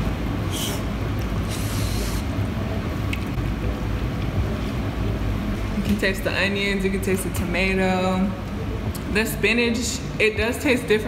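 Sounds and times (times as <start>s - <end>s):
low mechanical hum: 0.0s - 11.0s
person huffing breathy hisses: 0.5s - 2.3s.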